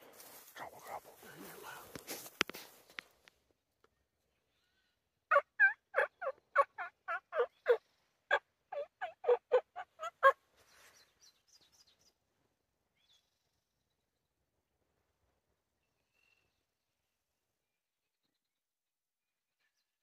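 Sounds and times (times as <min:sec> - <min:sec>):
turkey call hen yelps: 0:05.3 - 0:10.4.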